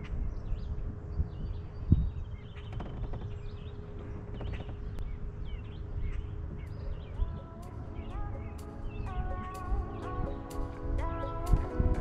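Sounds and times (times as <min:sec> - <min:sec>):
small birds chirping: 0:00.0 - 0:12.0
music: 0:06.9 - 0:12.0.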